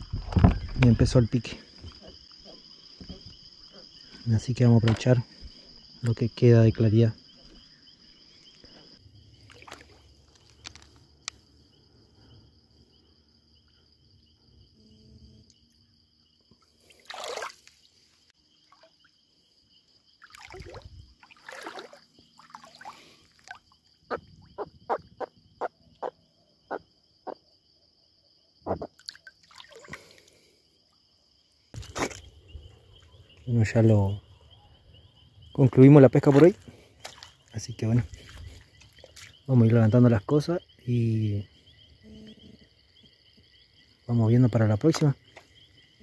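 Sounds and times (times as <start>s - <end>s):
crickets trilling: 0.0s - 46.0s
water sloshing and splashing: 9.3s - 11.1s, 16.6s - 19.2s, 20.1s - 24.6s, 28.9s - 30.4s, 36.2s - 39.5s.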